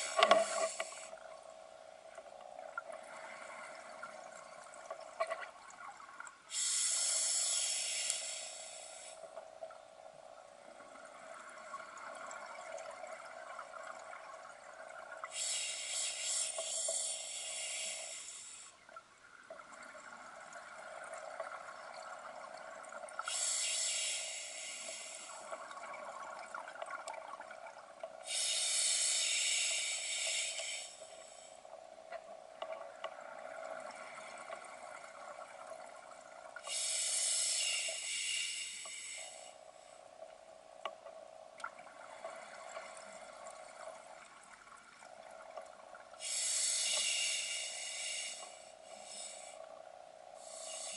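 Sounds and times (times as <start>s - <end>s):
hissing bubbles from regulator: 0.0s - 1.3s, 19.6s - 31.3s, 41.6s - 49.6s, 50.2s - 50.9s
steady underwater hum: 0.0s - 50.9s.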